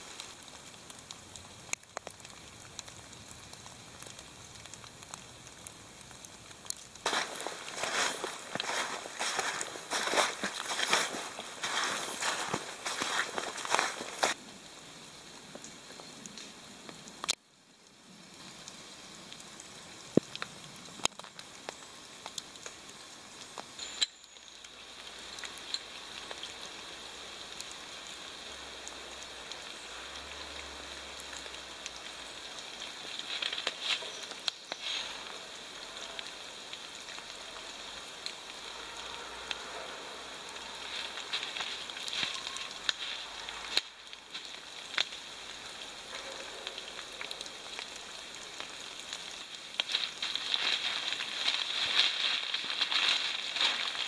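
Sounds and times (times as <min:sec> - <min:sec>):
wet snow pattering on leaves: 0:00.0 - 0:54.0
cord and tarp rustling: 0:07.0 - 0:14.4, 0:49.8 - 0:54.0.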